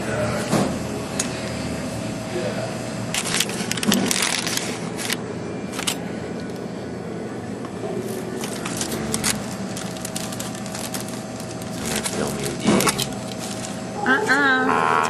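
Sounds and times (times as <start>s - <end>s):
faint room hum: 0.0s - 15.0s
crackles and clicks of eating: 7.6s - 14.0s.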